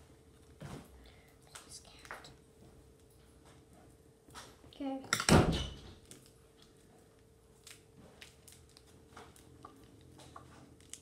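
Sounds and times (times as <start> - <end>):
faint steady hum: 0.0 - 11.0
plastic packaging crinkling: 6.0 - 11.0.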